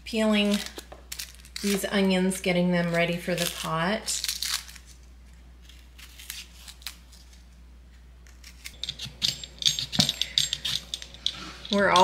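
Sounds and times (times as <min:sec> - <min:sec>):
knife scraping vegetable skin: 0:02.8 - 0:05.0, 0:05.6 - 0:07.4, 0:08.2 - 0:09.3.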